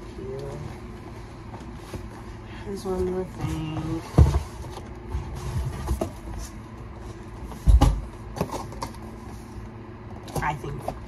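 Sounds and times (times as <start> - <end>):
cardboard box rustling and scraping: 2.8 - 7.7.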